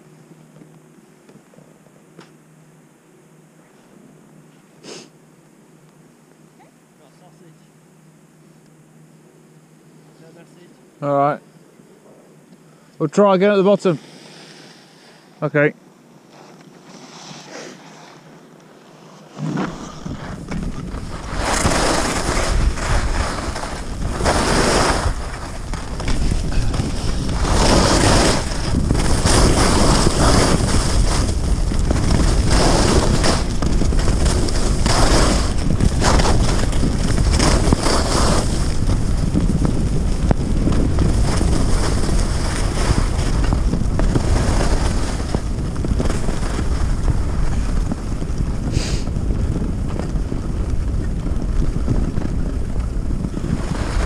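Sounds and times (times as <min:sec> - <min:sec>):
skis scraping packed snow: 0:13.1 - 0:54.0
wind rumbling on microphone: 0:19.2 - 0:54.0.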